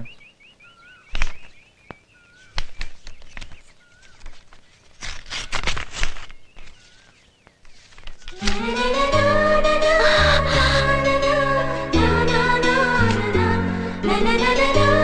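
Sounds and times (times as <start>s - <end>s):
birds chirping: 0.0s - 8.8s
paper rustling: 1.1s - 1.6s, 2.3s - 8.9s.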